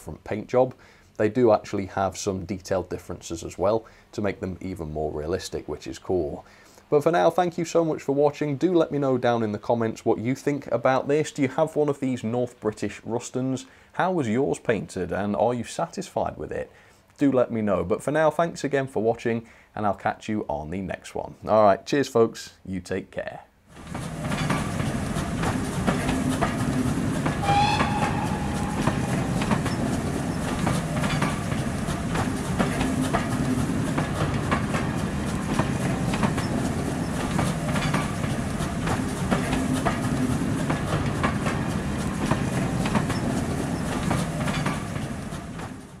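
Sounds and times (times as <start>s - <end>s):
train wheels clicking on rails: 23.8s - 46.0s
high squeal: 27.4s - 30.7s.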